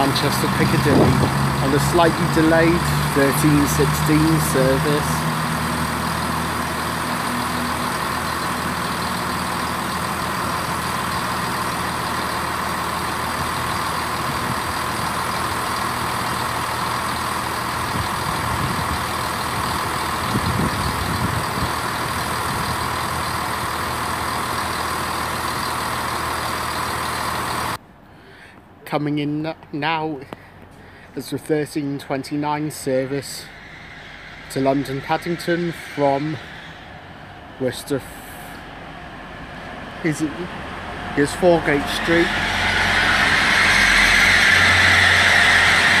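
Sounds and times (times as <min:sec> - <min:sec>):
diesel train engine: 0:00.0 - 0:46.0
steady rushing noise: 0:32.8 - 0:46.0.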